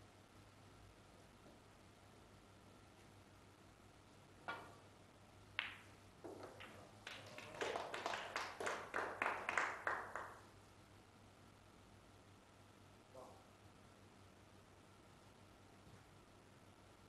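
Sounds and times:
people clapping: 5.6 - 10.5.

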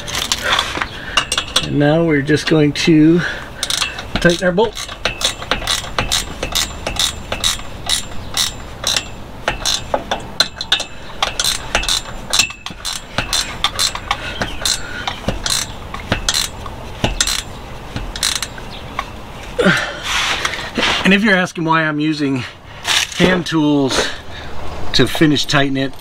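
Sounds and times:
ratchet wrench clicking: 1.2 - 1.8, 3.6 - 19.1.

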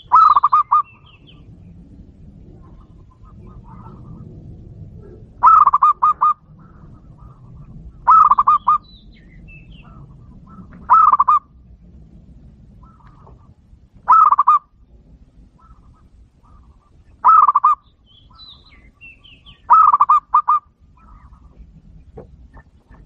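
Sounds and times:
dove cooing: 0.0 - 1.5, 2.3 - 11.6, 12.7 - 14.7, 15.4 - 23.0.

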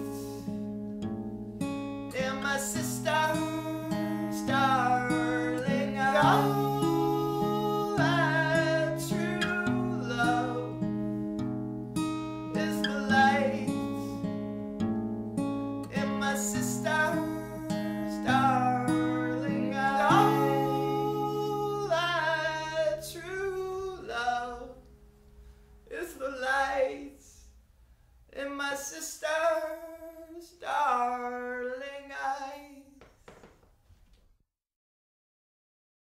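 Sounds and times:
person singing: 0.0 - 0.6, 2.1 - 10.9, 12.4 - 14.3, 15.9 - 24.8
guitar: 0.0 - 27.4.

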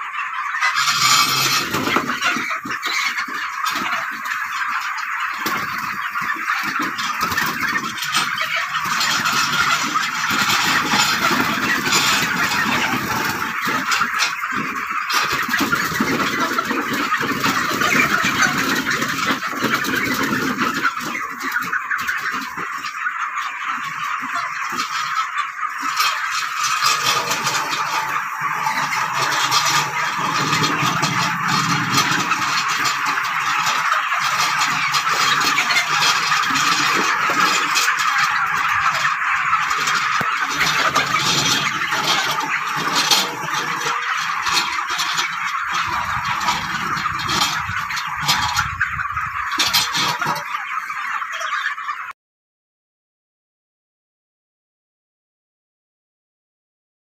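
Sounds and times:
chickens chattering: 0.0 - 52.2
rake scraping and clattering over litter: 0.7 - 2.6, 26.7 - 38.0.

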